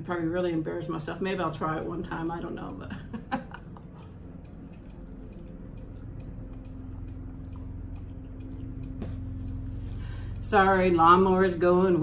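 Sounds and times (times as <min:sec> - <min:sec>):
wet mouth clicks: 0:03.9 - 0:09.6
noodles slurped and chewed: 0:04.5 - 0:09.3.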